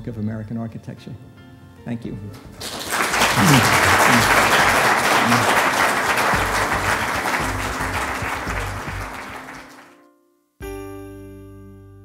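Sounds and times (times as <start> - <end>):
audience applauding: 2.5 - 10.0.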